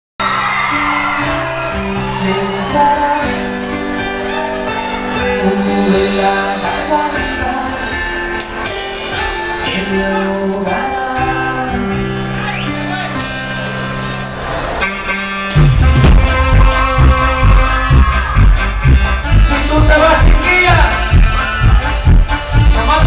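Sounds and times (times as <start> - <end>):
electric guitar: 0.2 - 23.0
live band through pa: 0.2 - 23.0
drum kit: 4.4 - 11.0, 13.0 - 23.0.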